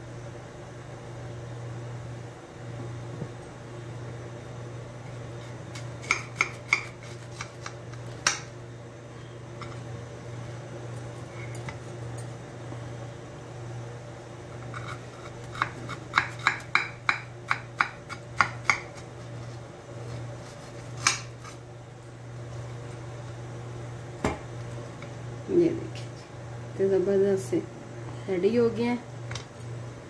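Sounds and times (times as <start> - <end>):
knife cutting crisp toast: 17.5 - 21.6.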